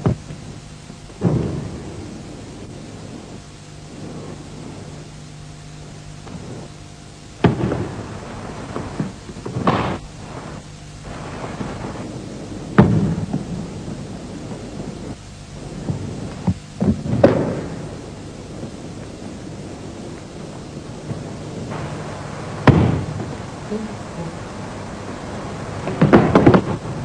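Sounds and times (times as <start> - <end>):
low steady hum: 0.0 - 27.0.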